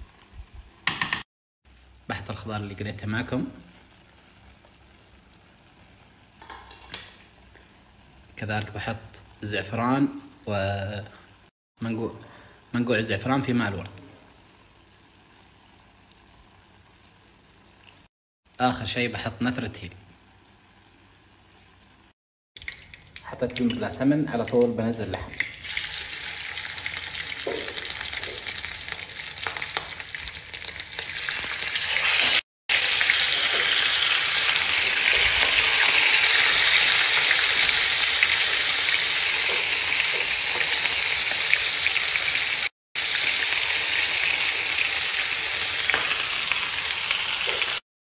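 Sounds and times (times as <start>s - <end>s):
meat sizzling in a frying pan: 25.5s - 47.8s.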